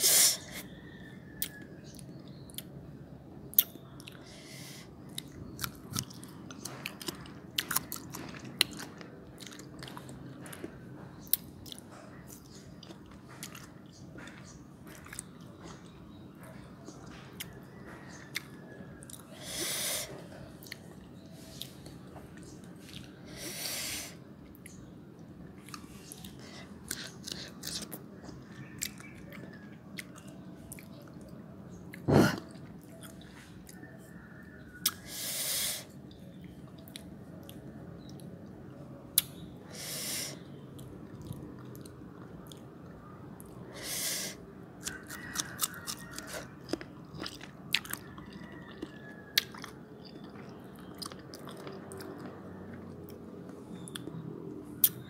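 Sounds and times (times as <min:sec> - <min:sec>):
chewing crunchy fruit: 0:00.3 - 0:02.9, 0:03.5 - 0:55.0
wet mouth clicks: 0:54.8 - 0:55.0.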